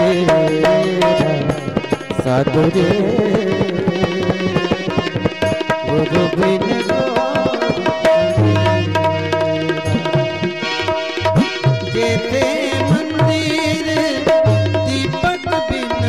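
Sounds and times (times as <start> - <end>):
hand drums: 0.0 - 16.0
melodic instrument gliding line: 6.2 - 13.3
low bass note: 8.3 - 10.5.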